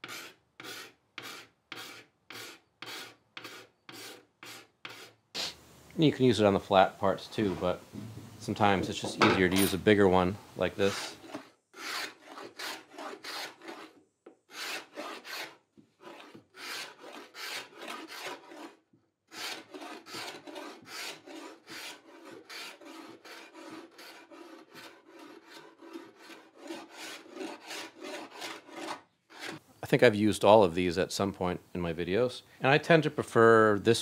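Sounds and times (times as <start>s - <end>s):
hand scraper rasping on wood: 0.0s - 5.2s, 10.7s - 29.6s.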